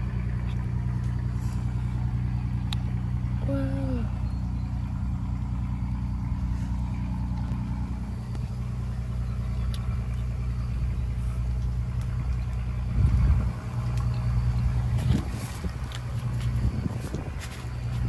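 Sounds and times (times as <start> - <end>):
low rumble: 0.0 - 18.0
motor hum: 0.0 - 18.0.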